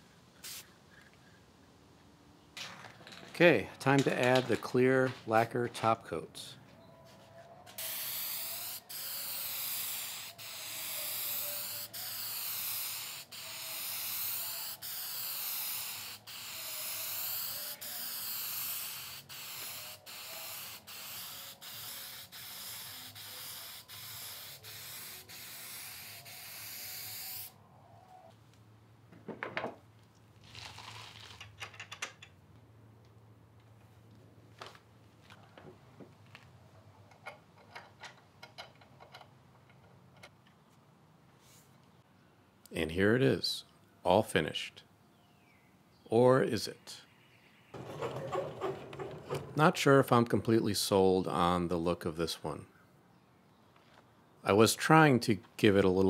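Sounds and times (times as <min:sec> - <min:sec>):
aerosol can spraying: 0:00.4 - 0:00.6, 0:07.8 - 0:27.6.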